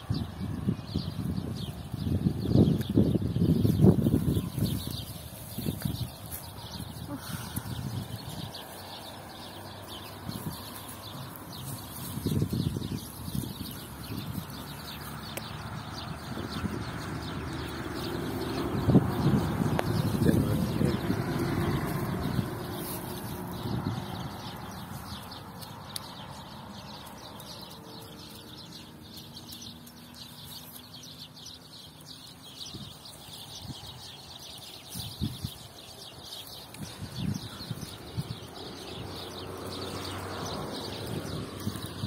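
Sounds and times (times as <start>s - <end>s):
birds chirping: 0.0s - 42.0s
goats moving and grazing: 0.0s - 42.0s.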